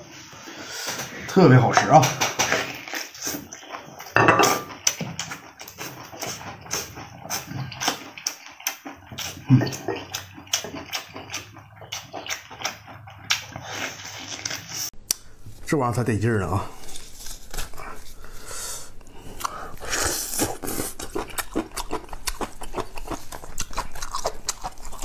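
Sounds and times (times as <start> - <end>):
chewing and lip-smacking: 2.5 - 15.2, 19.0 - 25.0.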